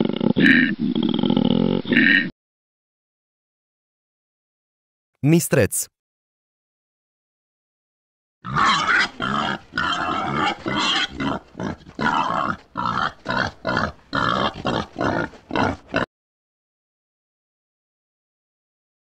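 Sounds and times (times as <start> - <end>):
wild boar calling: 0.0 - 2.3, 8.4 - 16.1.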